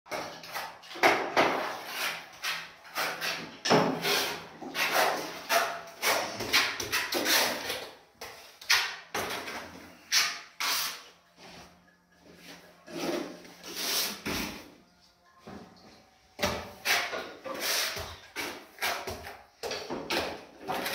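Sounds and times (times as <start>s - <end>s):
trowel scraping mortar on wall: 0.1s - 11.2s, 16.7s - 20.9s.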